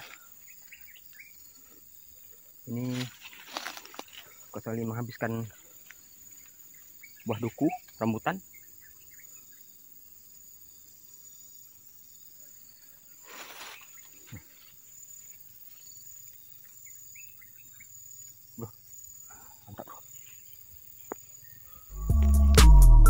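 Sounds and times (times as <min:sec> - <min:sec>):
insects droning: 0:00.0 - 0:22.4
brief rustle: 0:02.8 - 0:04.2, 0:13.3 - 0:14.7.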